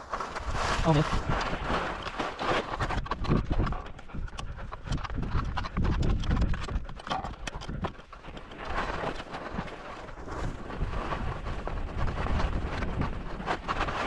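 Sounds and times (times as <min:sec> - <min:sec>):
skis sliding over snow: 0:00.0 - 0:03.3, 0:08.0 - 0:14.0
skis scraping over rock: 0:00.0 - 0:03.9, 0:05.8 - 0:14.0.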